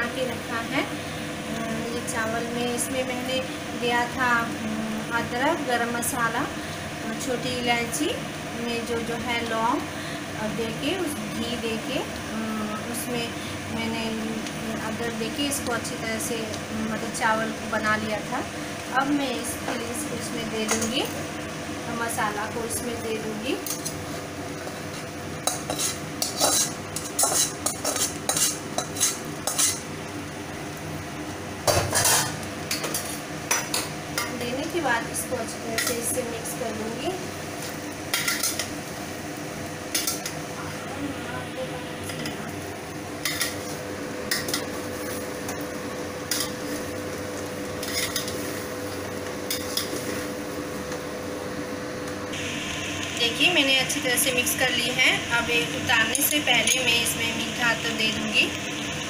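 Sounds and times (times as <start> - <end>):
spatula scraping metal pan: 25.5 - 29.8
spoon stirring rice in metal pot: 25.5 - 29.8.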